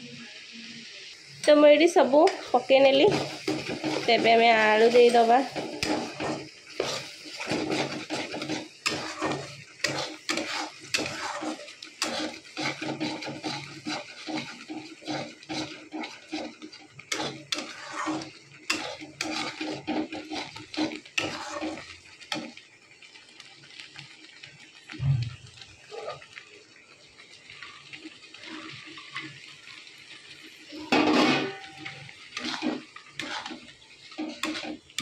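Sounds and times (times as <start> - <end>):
metal spatula scraping a pan: 1.4 - 22.6, 25.8 - 26.2, 30.7 - 35.0.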